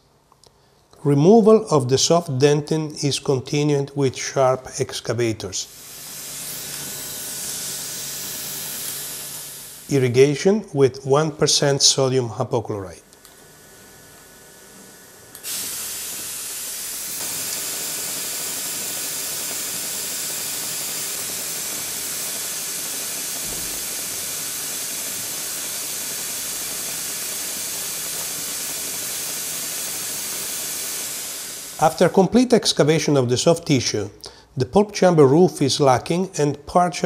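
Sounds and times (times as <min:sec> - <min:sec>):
dental suction hissing: 0:05.6 - 0:10.1, 0:15.3 - 0:32.2.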